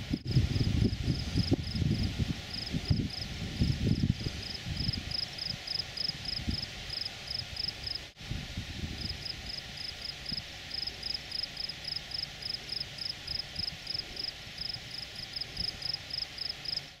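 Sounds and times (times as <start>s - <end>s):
steady hiss: 0.0s - 17.0s
cricket chirping: 4.4s - 8.0s, 9.0s - 16.8s.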